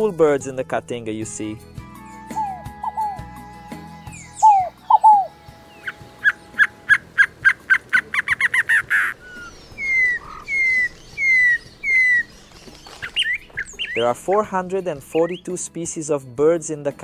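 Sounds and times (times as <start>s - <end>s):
bird sharp accelerating notes: 2.1s - 15.6s
down-slurred bird whistles: 2.2s - 14.2s, 15.1s - 15.5s
dove cooing: 2.3s - 14.6s.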